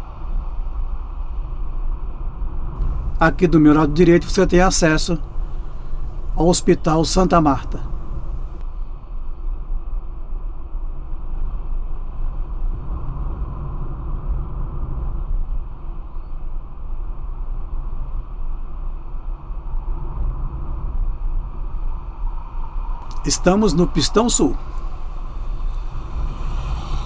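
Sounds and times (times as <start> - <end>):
car interior road rumble: 2.8 - 8.6, 23.0 - 27.0.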